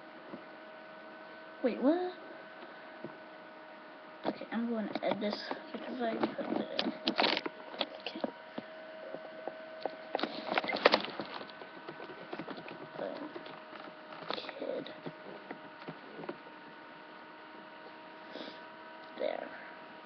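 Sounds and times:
steady electrical hum: 0.0 - 20.0
sharp clicks and knocks: 4.8 - 16.5.

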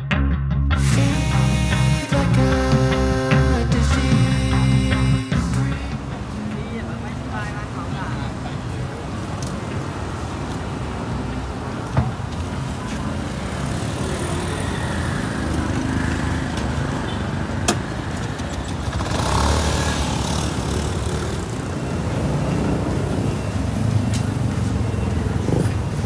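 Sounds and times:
road traffic hum: 0.7 - 26.0.

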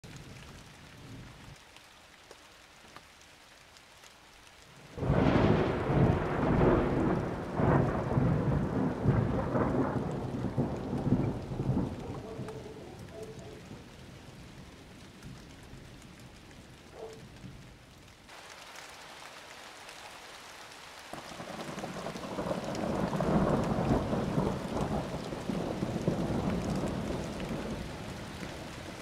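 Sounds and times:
steady rain hiss: 0.0 - 29.0
thunder rolling: 5.0 - 13.9, 21.4 - 28.0.

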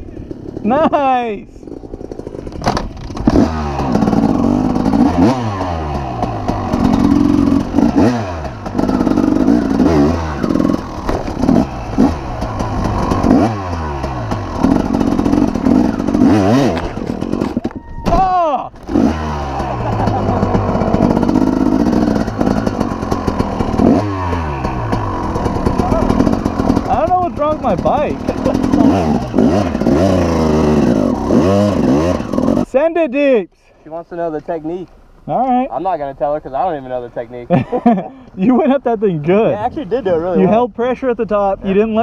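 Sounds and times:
dirt bike engine revving: 0.0 - 32.8.

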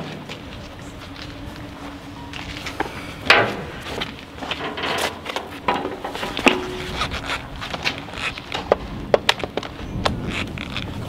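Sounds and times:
knocks and clanks on steel deck: 2.3 - 7.2
boot footsteps on metal: 2.3 - 9.7.

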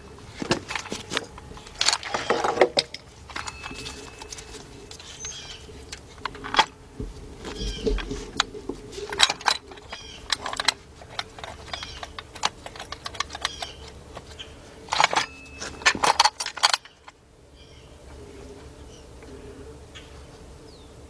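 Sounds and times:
metal tools clinking on metal: 0.2 - 6.8, 7.4 - 17.2.

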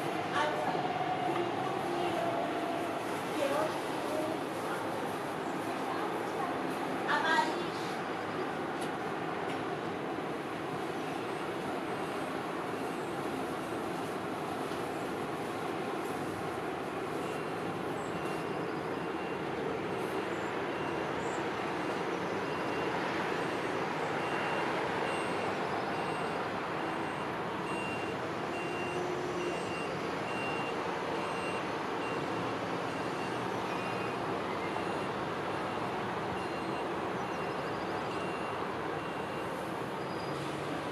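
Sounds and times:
reversing alarm beeping: 17.1 - 40.5.

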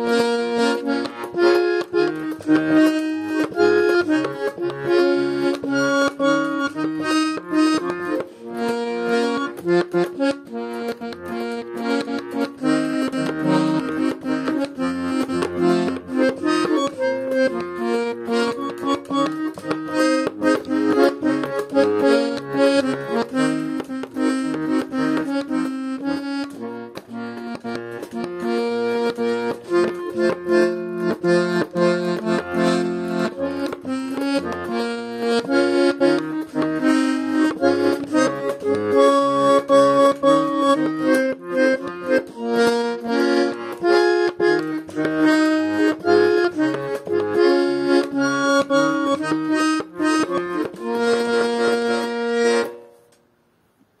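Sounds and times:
button accordion folk melody: 0.0 - 53.6.

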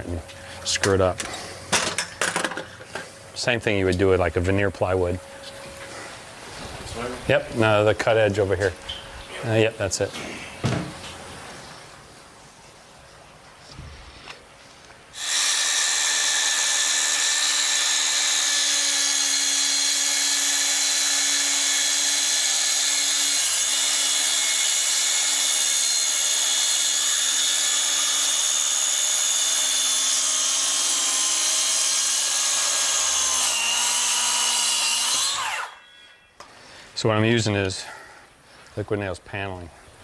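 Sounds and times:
circular saw whine: 15.1 - 36.5.

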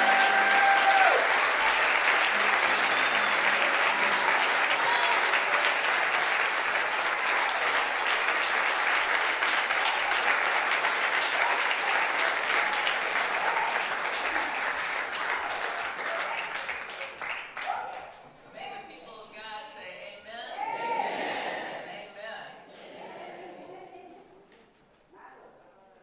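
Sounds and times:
congregation applauding: 0.0 - 18.2.

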